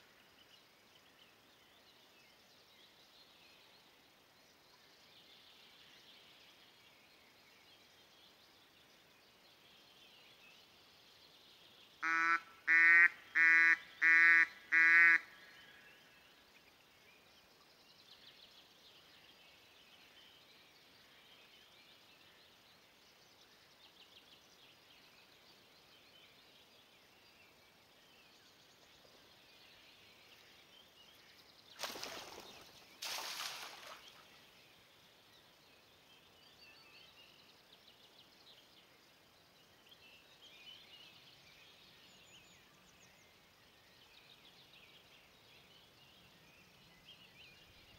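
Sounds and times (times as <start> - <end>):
duck call quacks: 12.0 - 15.2
faint bird chirps: 23.4 - 47.9.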